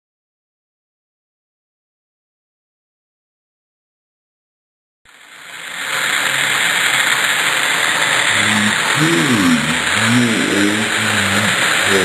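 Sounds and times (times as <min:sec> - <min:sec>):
food sizzling in a pan: 0:05.1 - 0:12.0
low voice talking: 0:08.3 - 0:12.0.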